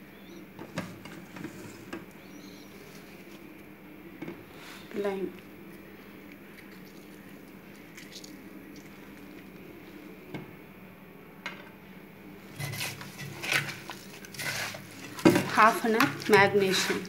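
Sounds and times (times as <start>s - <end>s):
faint low hum: 0.0s - 17.0s
hand mixing wet chicken: 6.2s - 9.6s, 12.4s - 17.0s.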